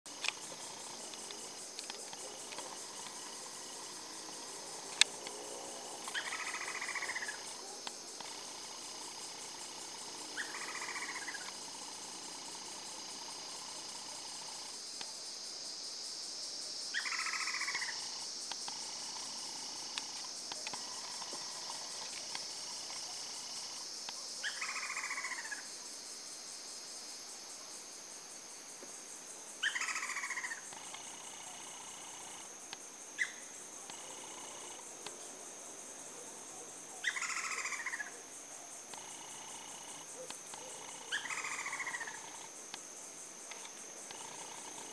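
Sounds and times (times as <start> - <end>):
high insect buzz: 0.0 - 44.9
woodpeckers calling: 6.0 - 7.6, 10.3 - 11.7, 29.6 - 31.0, 37.0 - 38.1, 40.2 - 42.5.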